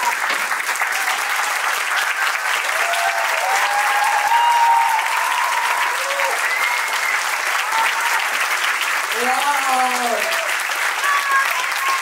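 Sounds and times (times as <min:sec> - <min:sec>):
audience applauding: 0:00.0 - 0:12.0
cheering calls: 0:00.0 - 0:12.0.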